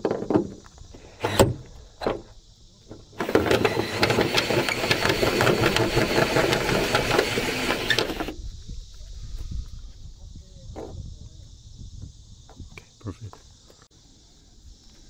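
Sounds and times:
drill boring through metal: 0:01.2 - 0:01.6, 0:03.2 - 0:08.4
drill clicks: 0:01.2 - 0:01.7, 0:03.2 - 0:08.4
rapid ticking of bit cutting metal: 0:03.2 - 0:08.3.

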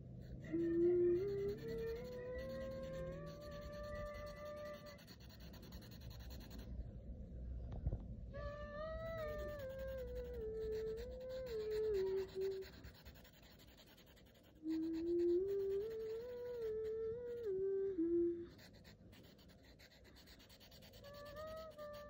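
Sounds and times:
marker rubbing on paper: 0:01.2 - 0:06.7, 0:09.2 - 0:16.7, 0:18.6 - 0:22.0.

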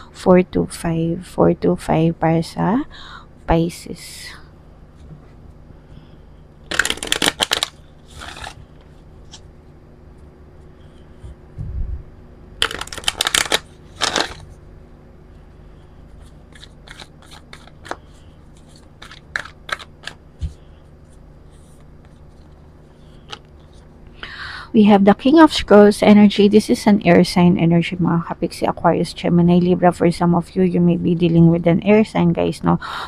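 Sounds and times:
cards being riffle-shuffled: 0:06.7 - 0:09.5, 0:12.6 - 0:14.6, 0:16.1 - 0:23.9
cards pattering together: 0:06.7 - 0:09.5, 0:12.6 - 0:14.5, 0:16.2 - 0:20.6.

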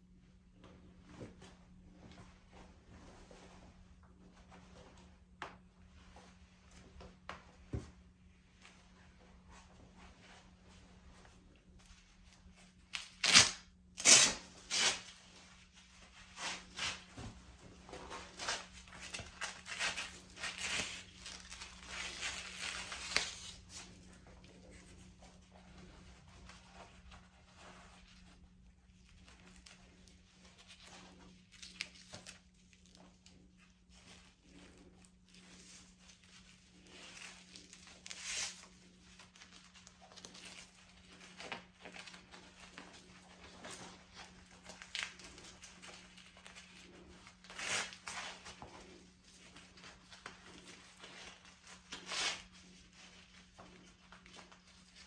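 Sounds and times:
hook-and-loop ripping apart: 0:12.9 - 0:15.1.

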